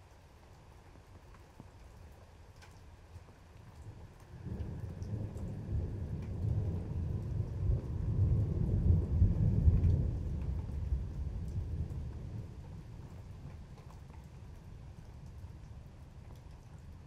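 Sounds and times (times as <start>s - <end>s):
light rain: 0.0s - 17.0s
water drips ticking: 0.0s - 17.0s
thunder rumbling: 4.3s - 13.7s.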